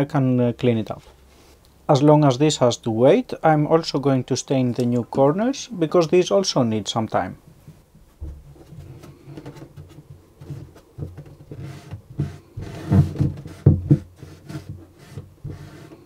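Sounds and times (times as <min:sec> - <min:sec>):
hand-handling rustles: 0:07.5 - 0:16.0
soft knocks against cello: 0:07.7 - 0:08.7
cotton rubbing on wooden cello: 0:08.6 - 0:16.0.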